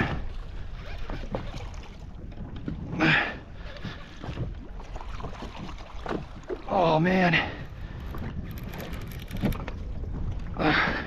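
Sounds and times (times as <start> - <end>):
wind rumble on microphone: 0.0 - 11.0
fishing reel cranking: 8.1 - 9.6.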